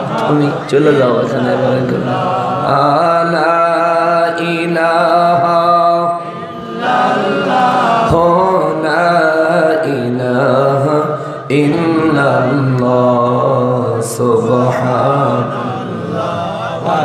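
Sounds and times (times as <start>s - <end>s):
man chanting into a microphone: 0.0s - 17.0s.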